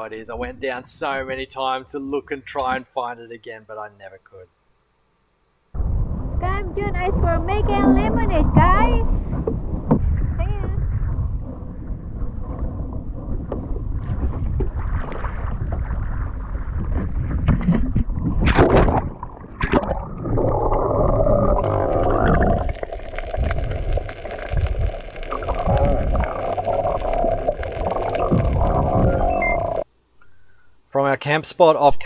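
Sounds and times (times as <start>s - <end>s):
muffled underwater rushing and bubbling: 5.8s - 29.8s
wind and water noise: 5.8s - 29.8s.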